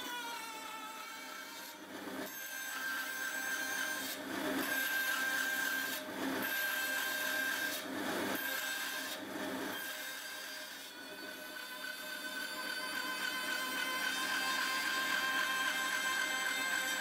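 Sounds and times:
blade cutting wood: 0.0s - 17.0s
bandsaw whine: 11.3s - 17.0s.

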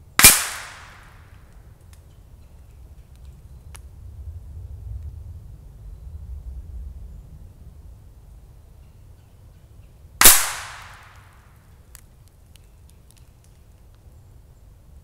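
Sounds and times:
rifle shot: 0.2s - 1.2s, 10.2s - 11.3s.

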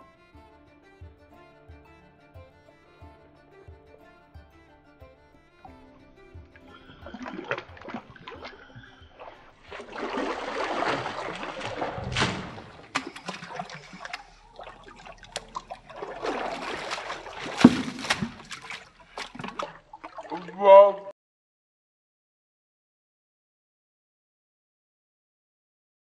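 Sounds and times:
water splashes: 6.5s - 21.1s
water pouring into pool: 6.6s - 20.9s.

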